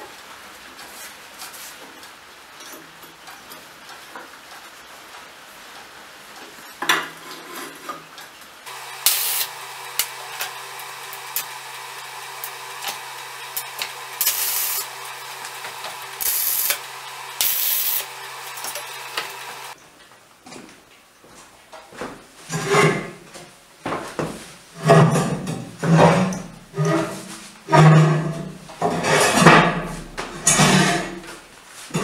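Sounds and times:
welder hum: 8.7s - 19.8s
welding arc crackling: 8.7s - 19.8s.

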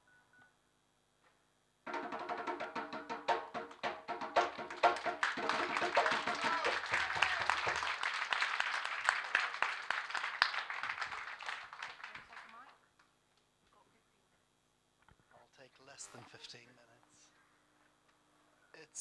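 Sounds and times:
audience clapping: 3.6s - 13.1s.

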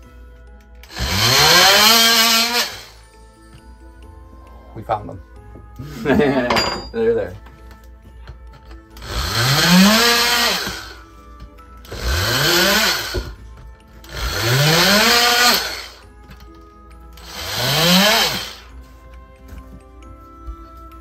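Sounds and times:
power saw cutting drywall: 0.8s - 3.0s, 9.0s - 11.0s, 11.9s - 13.4s, 14.1s - 16.0s, 17.2s - 18.7s.

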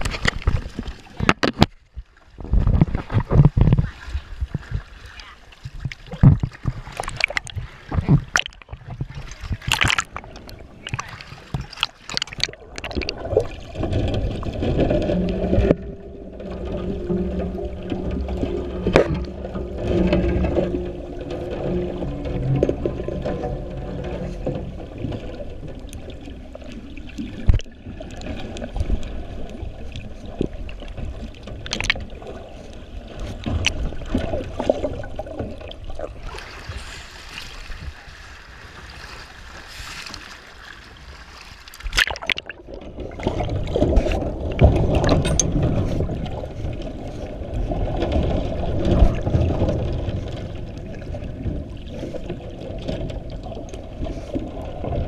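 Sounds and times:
muffled underwater rush: 0.0s - 55.0s
waves splashing and hissing: 36.1s - 41.8s.

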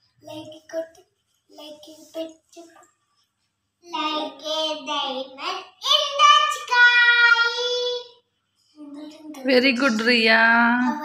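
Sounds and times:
child singing in high voice: 3.9s - 8.2s.

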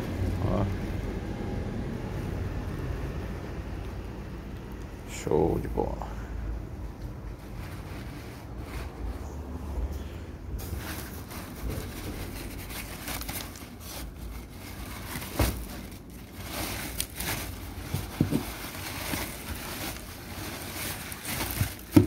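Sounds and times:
packing paper rustling: 10.6s - 22.0s.

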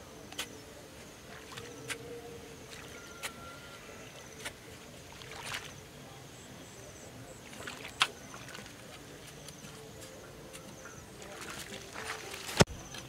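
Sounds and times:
digging tool striking wet mud: 7.5s - 13.0s.

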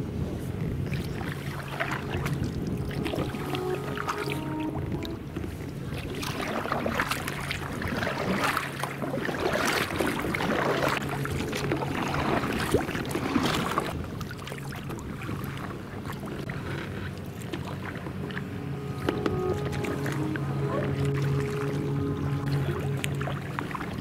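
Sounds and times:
water splashing along boat hull: 0.0s - 24.0s
steady low hum: 16.4s - 24.0s.

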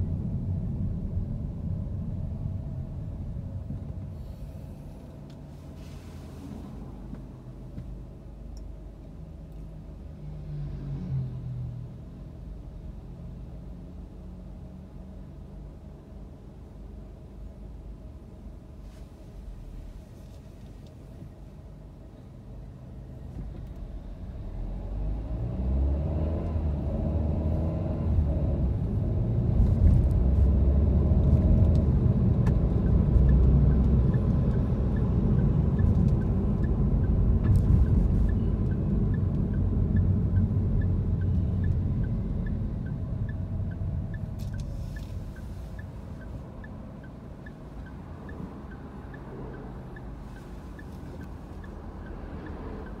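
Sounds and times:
car engine and road rumble: 0.0s - 53.0s.

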